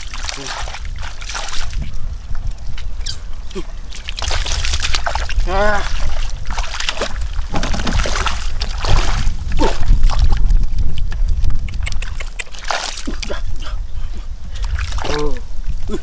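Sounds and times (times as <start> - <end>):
water splashing while wading: 0.0 - 2.0, 2.9 - 10.6, 12.1 - 13.4, 14.5 - 16.0.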